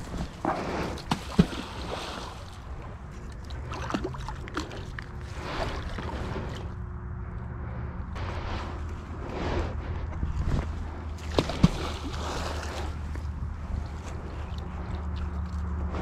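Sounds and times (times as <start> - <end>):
water sloshing: 0.0 - 6.9, 8.2 - 16.0
low rumble: 0.0 - 16.0.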